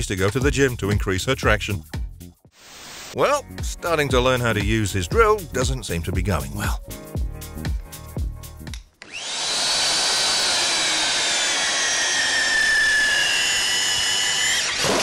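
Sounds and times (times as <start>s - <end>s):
drill press motor whining: 9.0s - 15.0s.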